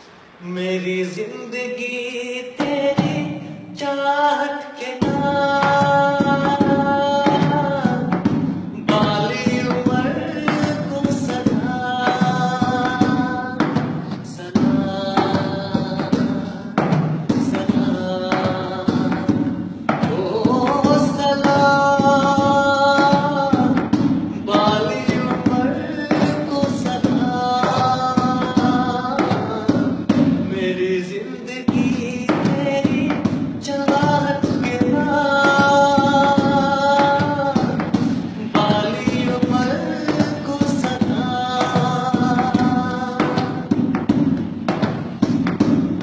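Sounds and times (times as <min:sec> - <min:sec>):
man singing: 0:00.4 - 0:46.0
thumping hand percussion: 0:02.6 - 0:03.8, 0:05.0 - 0:46.0.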